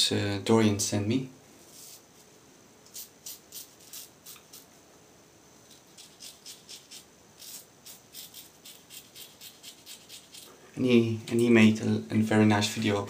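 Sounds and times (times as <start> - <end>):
razor scraping stubble: 2.9 - 4.6, 5.8 - 10.5.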